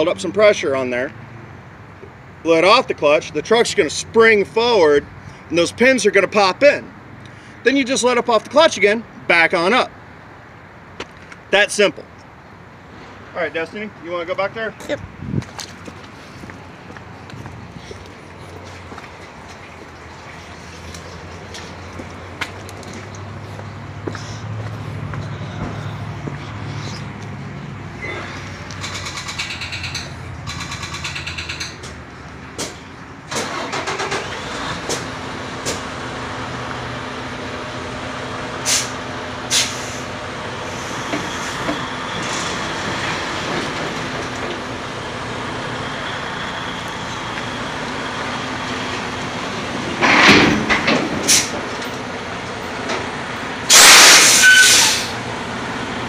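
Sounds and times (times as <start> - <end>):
diesel truck engine idling: 16.4 - 56.0
sharp clicks and knocks: 28.6 - 33.5
air brake hissing: 38.6 - 42.6, 53.7 - 55.2.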